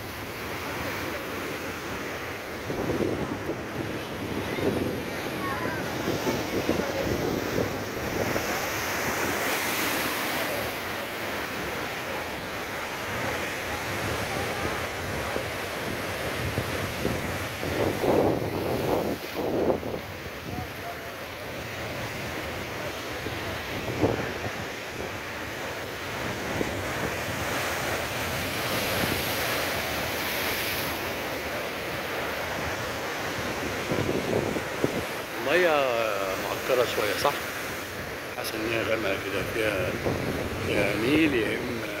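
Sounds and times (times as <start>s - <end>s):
storm surf crashing on concrete: 0.0s - 42.0s
wind buffeting microphone: 2.5s - 9.9s, 11.7s - 31.3s, 32.0s - 35.2s, 39.4s - 42.0s.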